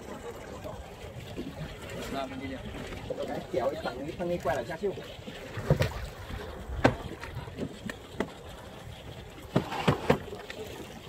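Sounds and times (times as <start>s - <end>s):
wind and water wash: 0.0s - 11.0s
hull and tackle knocking: 6.8s - 8.4s.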